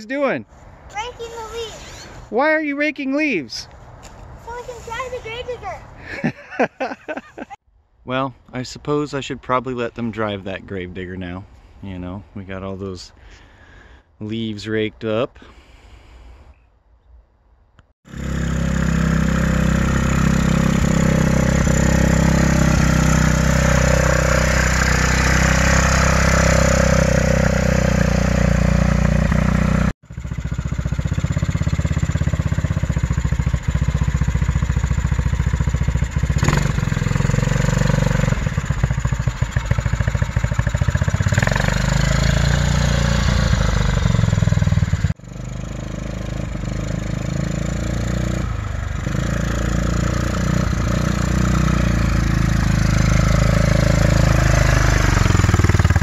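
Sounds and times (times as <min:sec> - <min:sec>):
single-cylinder engine running: 0:18.1 - 0:56.0.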